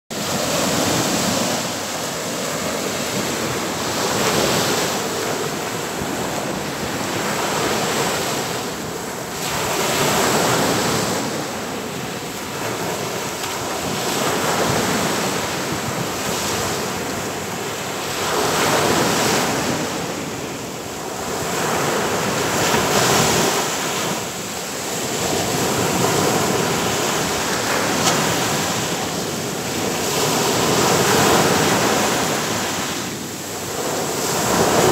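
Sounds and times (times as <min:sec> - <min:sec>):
waves breaking on a beach: 0:00.1 - 0:34.9.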